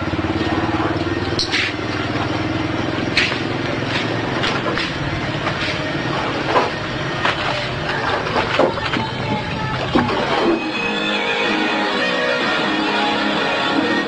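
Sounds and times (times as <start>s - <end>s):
small engine running: 0.0s - 8.2s.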